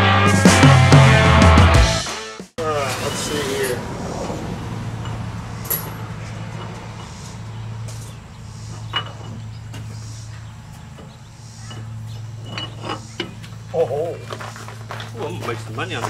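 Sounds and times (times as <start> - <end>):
steady low hum: 2.7 - 16.0
light metallic clinks: 5.0 - 10.1.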